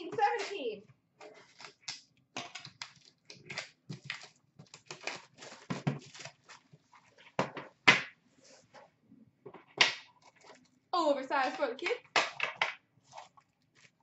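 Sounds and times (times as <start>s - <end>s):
plastic wrapping crinkling: 0.0s - 7.4s
plastic ripping: 1.2s - 7.2s.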